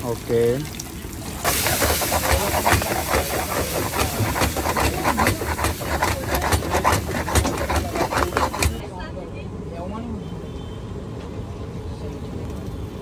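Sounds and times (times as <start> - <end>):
filling sizzling in a pan: 0.0 - 8.8
spatula scraping a pan: 1.4 - 8.8.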